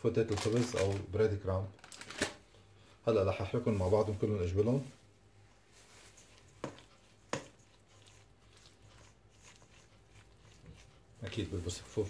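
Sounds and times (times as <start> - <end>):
spoon stirring mixture: 5.8 - 12.0.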